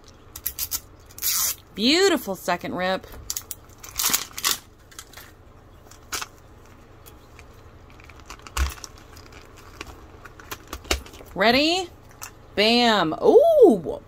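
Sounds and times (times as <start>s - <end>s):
foil wrapper crinkling: 3.3s - 11.4s.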